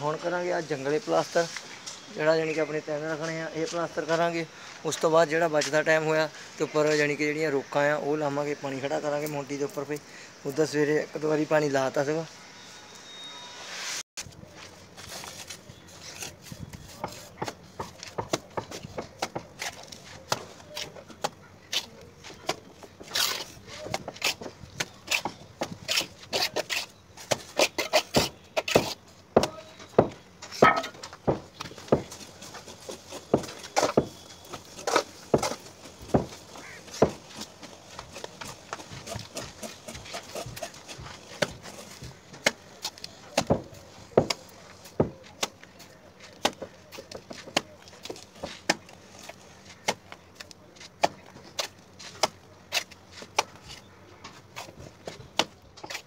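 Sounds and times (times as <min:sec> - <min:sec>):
steel trowels scraping mortar pans: 0:23.0 - 0:29.0, 0:38.1 - 0:42.1.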